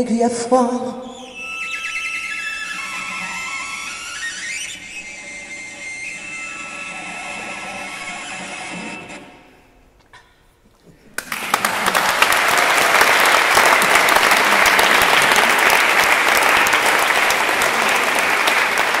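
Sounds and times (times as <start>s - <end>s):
audience applause: 11.2s - 19.0s.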